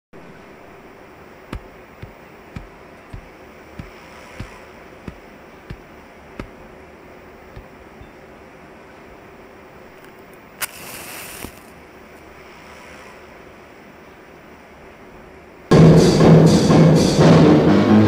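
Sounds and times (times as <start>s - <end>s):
steady hiss: 0.2s - 15.8s
faint hum: 0.2s - 18.0s
footsteps on concrete: 1.5s - 6.6s, 7.5s - 8.1s.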